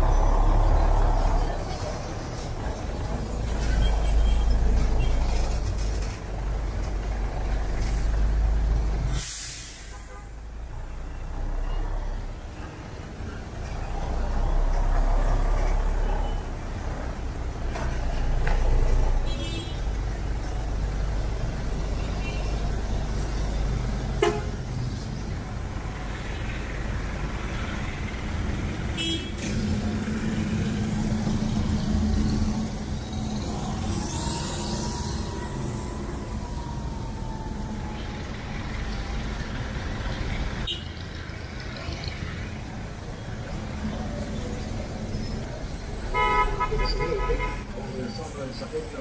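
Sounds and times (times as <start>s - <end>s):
vehicle engines rumbling: 0.0s - 49.0s
air hiss: 9.1s - 10.1s
car horn toots: 46.1s - 47.6s.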